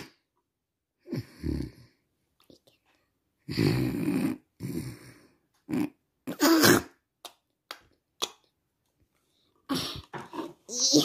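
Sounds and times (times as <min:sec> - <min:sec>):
child making vocal noises: 0:10.7 - 0:11.0.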